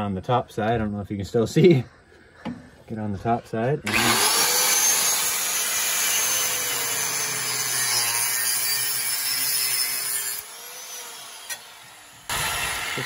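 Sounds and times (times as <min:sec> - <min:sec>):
angle grinder cutting metal pipe: 0:03.9 - 0:13.0.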